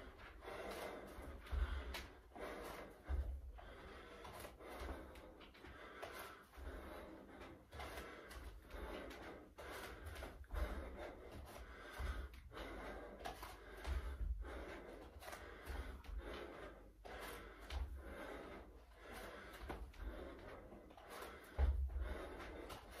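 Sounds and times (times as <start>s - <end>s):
man breathing hard: 0.0s - 23.0s
feet thudding on floor: 9.7s - 14.7s.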